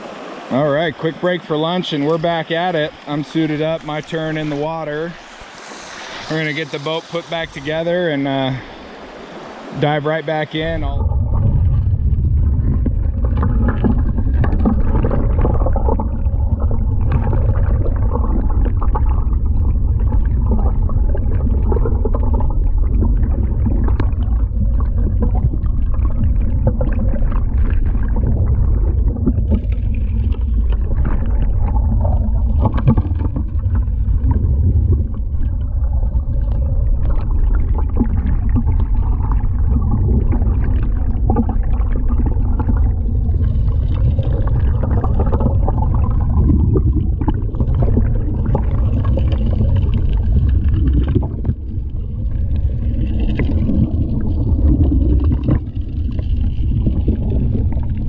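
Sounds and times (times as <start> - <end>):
dredge low rumble underwater: 0.0 - 58.0
gravel clicking and knocking: 11.0 - 19.1.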